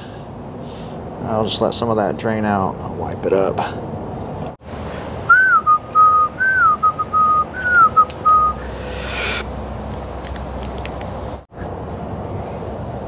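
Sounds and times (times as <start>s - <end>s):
person whistling a tune: 5.3s - 9.4s
brief hiss: 8.6s - 9.5s.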